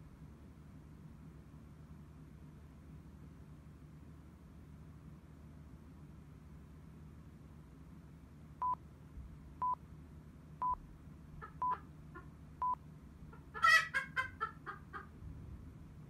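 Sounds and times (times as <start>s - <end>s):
chicken clucking loudly: 11.4s - 12.4s, 13.3s - 15.2s.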